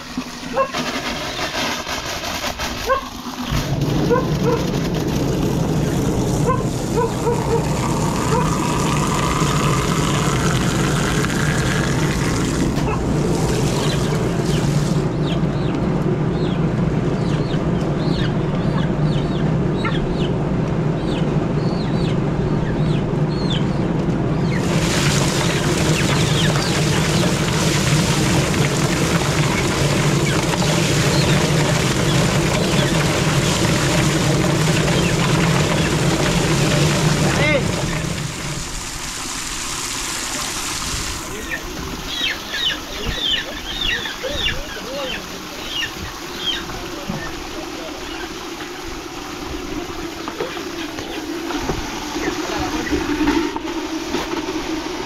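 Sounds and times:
small engine running: 0.0s - 15.7s, 24.4s - 43.9s
chickens clucking: 6.4s - 10.3s, 41.4s - 48.9s.

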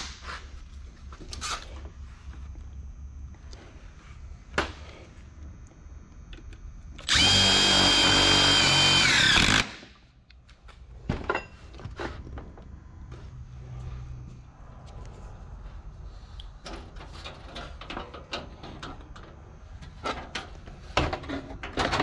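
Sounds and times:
impact driver driving screw: 7.0s - 9.8s.

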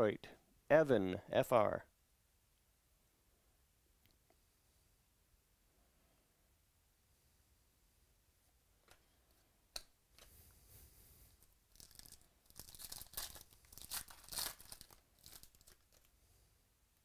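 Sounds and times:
card pack wrapper tearing: 11.7s - 16.1s.

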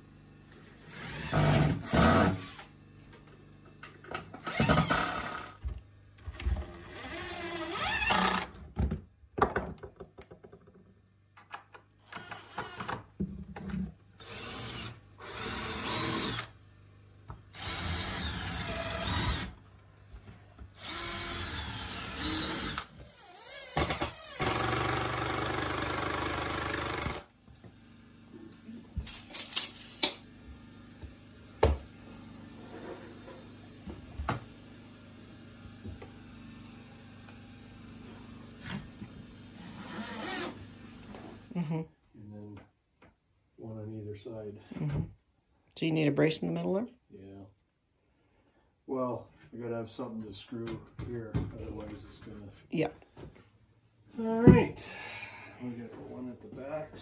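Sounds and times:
cordless drill driving screws: 0.4s - 2.7s, 4.4s - 5.6s, 6.2s - 8.6s, 12.0s - 13.0s, 14.2s - 16.6s, 17.5s - 19.6s, 20.8s - 27.3s, 39.5s - 40.7s.

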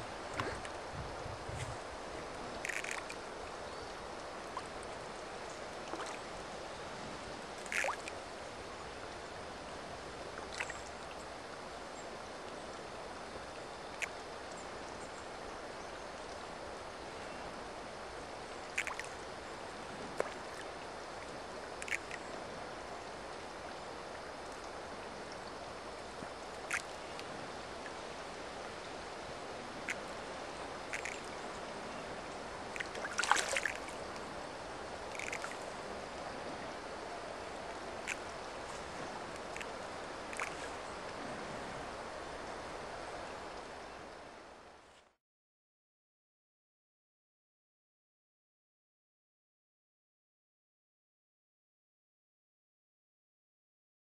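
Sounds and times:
fish splashing at water surface: 2.6s - 3.2s, 7.6s - 8.1s, 30.9s - 31.3s, 32.8s - 33.9s, 35.1s - 35.6s.

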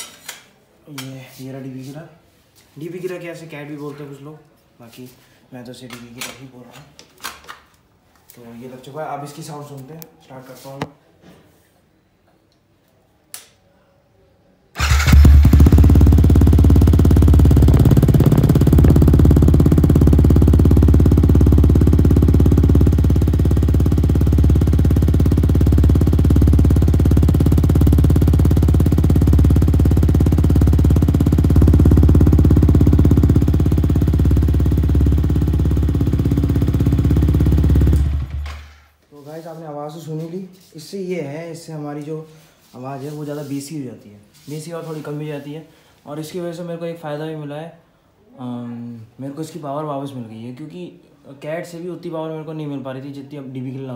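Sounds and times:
motorcycle engine starting and idling: 14.8s - 38.9s.

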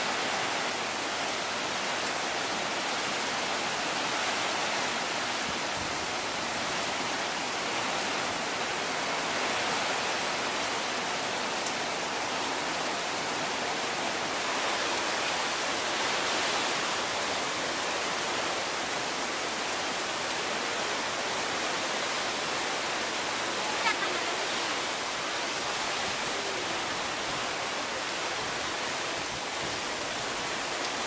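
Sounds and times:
heavy rain pouring: 0.0s - 31.0s.

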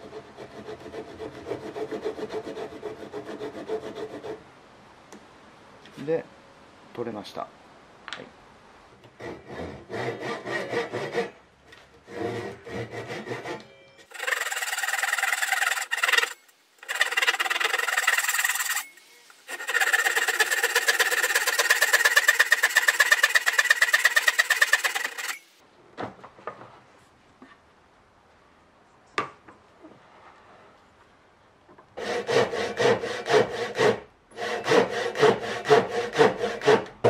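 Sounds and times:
hand saw cutting wood: 0.0s - 4.4s, 9.2s - 11.4s, 12.0s - 25.5s, 32.0s - 37.0s.

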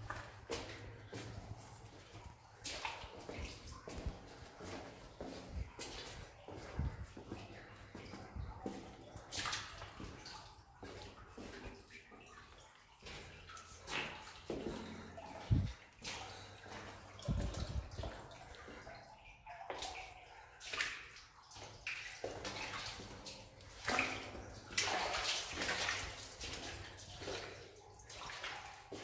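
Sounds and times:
footsteps wading through water: 0.0s - 29.0s.

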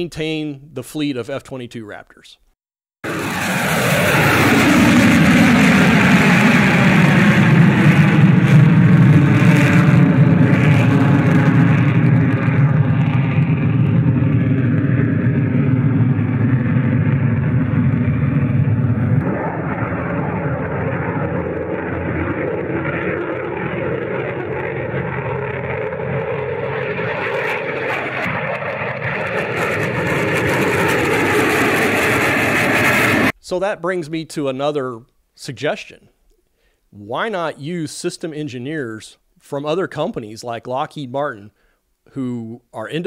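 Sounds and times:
jet engine rumble in flight: 3.0s - 33.4s.

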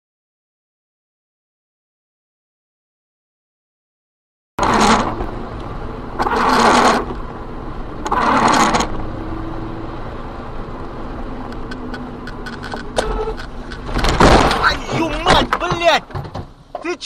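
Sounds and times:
engine and tyres rumbling: 4.6s - 17.0s.

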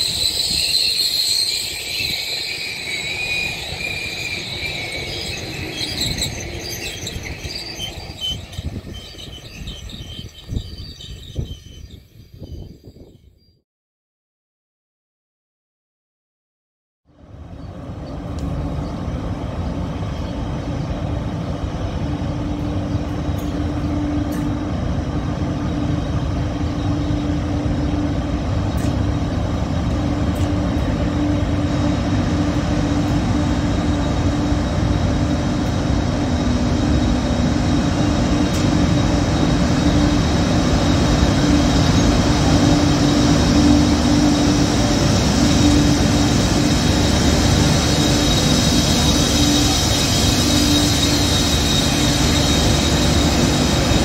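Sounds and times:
train wheels running on rail: 0.0s - 13.2s, 17.2s - 54.0s
locomotive hum: 0.0s - 13.3s, 17.2s - 54.0s.

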